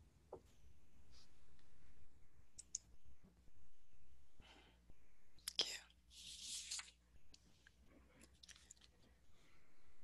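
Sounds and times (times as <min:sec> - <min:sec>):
steady low hum: 0:00.4 - 0:06.1
soft breath: 0:04.4 - 0:05.4, 0:09.1 - 0:10.0.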